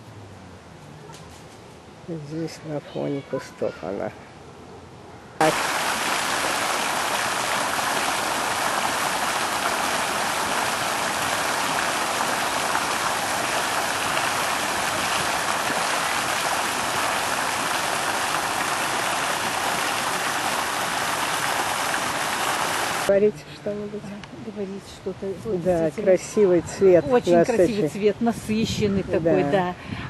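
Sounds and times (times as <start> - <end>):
running water rushing: 5.4 - 23.2.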